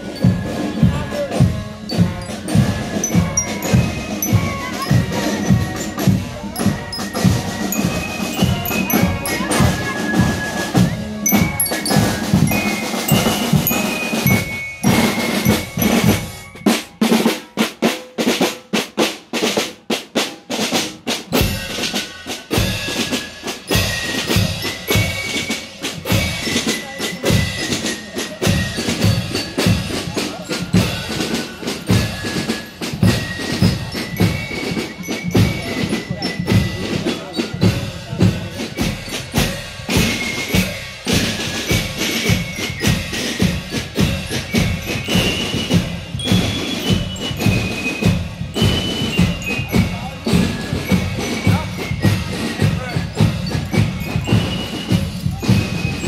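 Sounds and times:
marching band melody: 0:00.0 - 0:56.0
snare drums rattling: 0:00.0 - 0:56.0.

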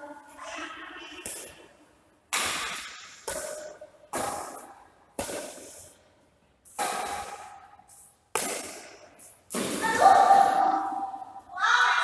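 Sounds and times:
racket hitting shuttlecock: 0:01.2 - 0:01.7, 0:02.3 - 0:05.9, 0:06.7 - 0:07.7, 0:08.3 - 0:11.0.

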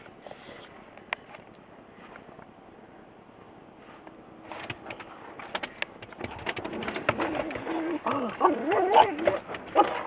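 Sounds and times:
dog whining and grumbling: 0:07.1 - 0:10.0.

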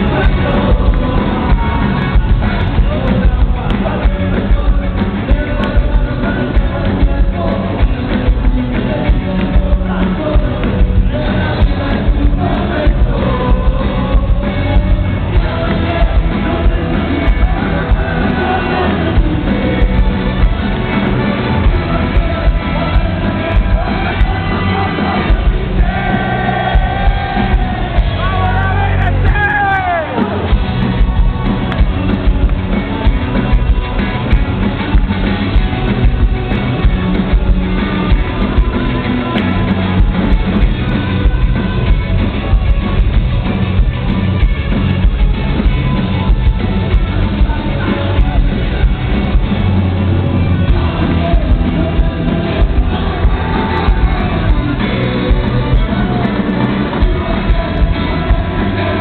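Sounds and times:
person singing: 0:00.0 - 0:43.7, 0:45.2 - 0:59.0
live rock band with horns: 0:00.0 - 0:59.0
crowd shouts: 0:20.7 - 0:36.0.

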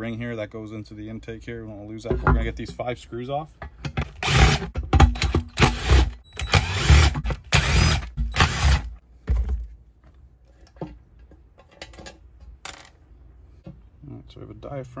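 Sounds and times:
cordless screwdriver motor running: 0:05.6 - 0:08.9.

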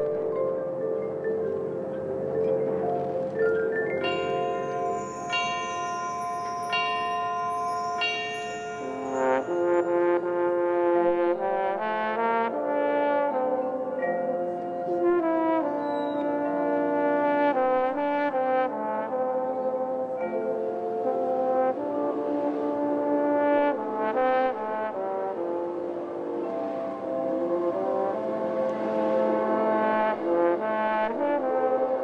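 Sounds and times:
marching band brass playing: 0:08.4 - 0:14.1, 0:14.8 - 0:32.0.

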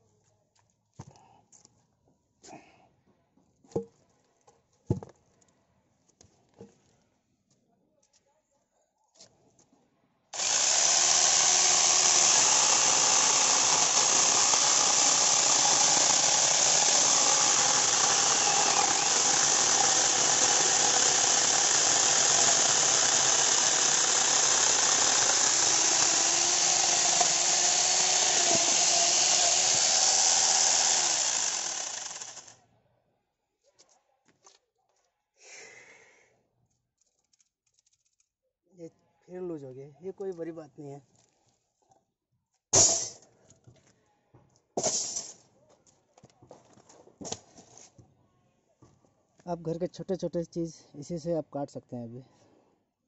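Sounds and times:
chainsaw cutting log: 0:10.4 - 0:32.6.

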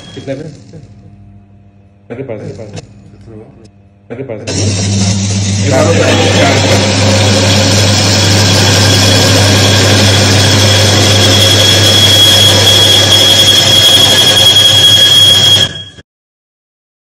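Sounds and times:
electric motor humming: 0:04.5 - 0:15.8
high steel screech: 0:04.5 - 0:16.0.

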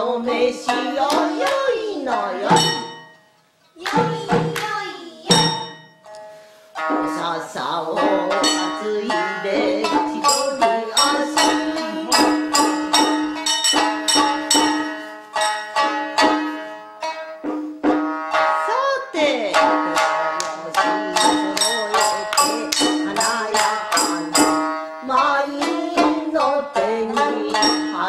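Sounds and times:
person singing: 0:00.0 - 0:02.9, 0:06.9 - 0:13.2, 0:18.6 - 0:28.0
shamisen plucking: 0:00.0 - 0:28.0.

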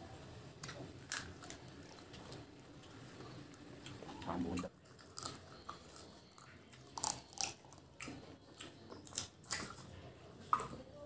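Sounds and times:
person chewing chicken: 0:04.6 - 0:10.8.

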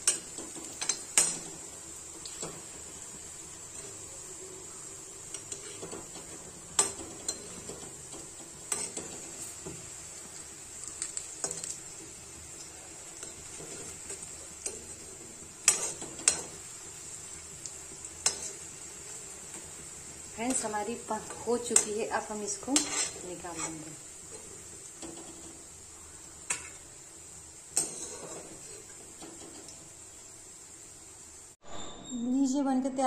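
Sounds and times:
food deep-frying in oil: 0:00.0 - 0:31.6.

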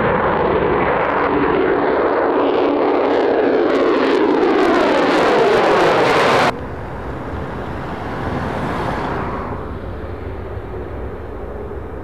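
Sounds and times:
fighter jet taking off: 0:00.0 - 0:12.0
steady jet rumble: 0:05.3 - 0:12.0.

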